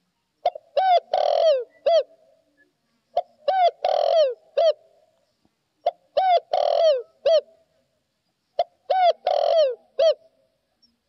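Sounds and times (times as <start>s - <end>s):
dove cooing: 0.4s - 2.3s, 3.1s - 5.0s, 5.8s - 7.6s, 8.6s - 10.4s.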